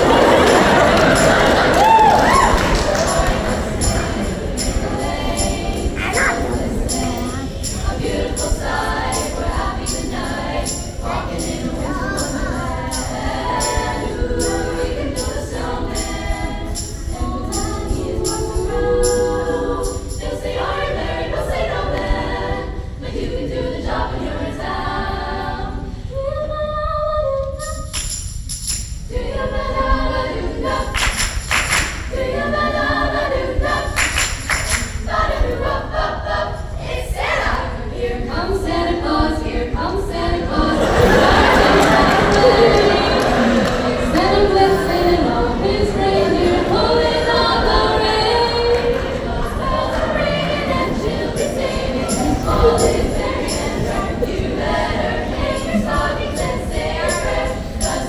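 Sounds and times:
steady percussive beat: 0.0 - 21.1, 40.0 - 58.0
choir singing: 0.0 - 27.8, 29.1 - 58.0.

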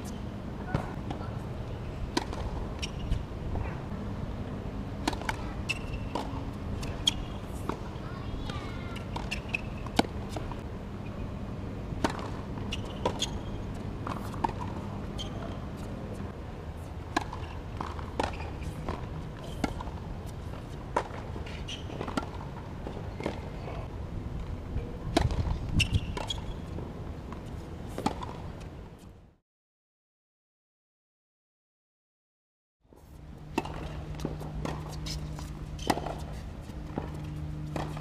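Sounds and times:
tennis balls bouncing on hard court: 2.1 - 3.7, 5.0 - 10.6, 12.0 - 15.9, 17.1 - 23.5, 33.5 - 38.0
tennis balls struck by rackets: 2.1 - 3.8, 5.0 - 10.6, 12.0 - 15.8, 17.1 - 23.5, 25.1 - 26.4, 33.5 - 38.0.

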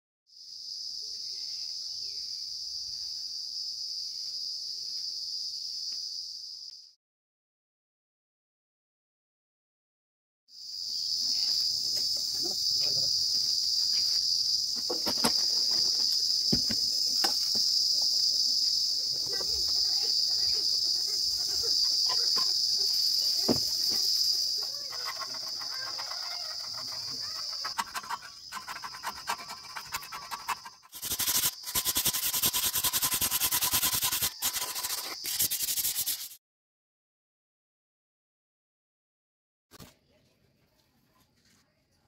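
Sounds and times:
insects droning: 0.3 - 6.9, 10.6 - 36.2
paint scraping off metal: 23.6 - 36.4.

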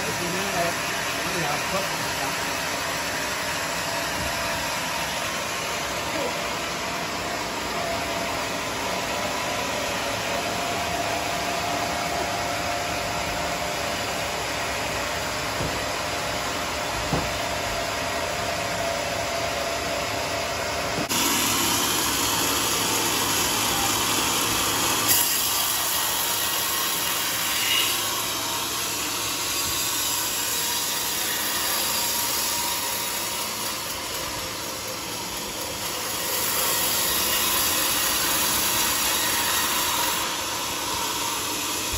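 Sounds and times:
band saw humming: 0.0 - 41.9
saw blade cutting log: 21.0 - 41.9.

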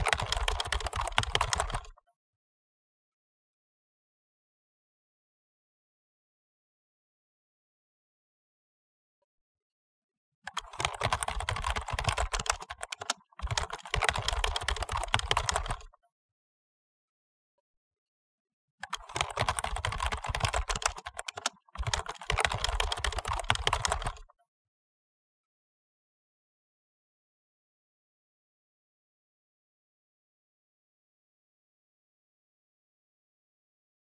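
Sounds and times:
fast typing on keyboard: 0.0 - 2.0, 10.5 - 15.9, 18.8 - 24.3.

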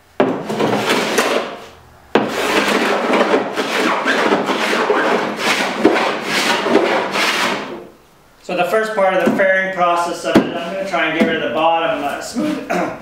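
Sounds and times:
block plane shaving wood: 2.2 - 7.8.

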